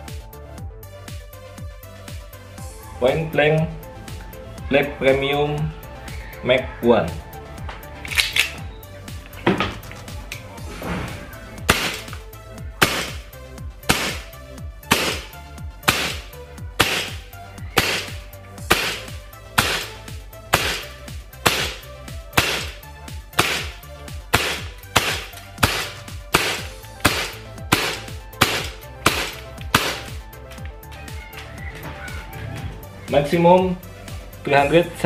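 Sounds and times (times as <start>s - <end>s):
airsoft gun shots cracking: 11.7s - 12.2s, 12.8s - 30.2s.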